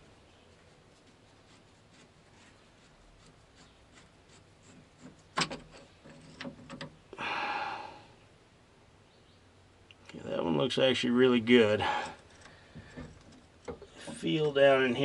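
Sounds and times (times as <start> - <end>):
fitting scraping loose: 3.2 - 7.0, 11.8 - 15.0.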